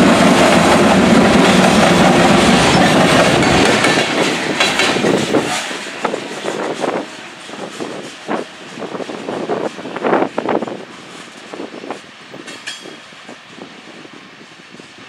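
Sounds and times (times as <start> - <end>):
freight train wheels rumbling: 0.0 - 15.0
train wheel clicks: 0.2 - 8.5, 12.3 - 13.0.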